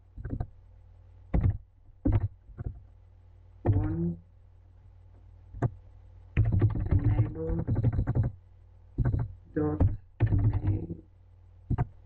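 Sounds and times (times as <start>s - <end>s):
low steady hum: 0.0s - 12.0s
person speaking: 3.6s - 4.3s, 6.7s - 7.9s, 9.5s - 11.1s
keyboard keystrokes: 6.4s - 8.3s, 9.0s - 10.9s.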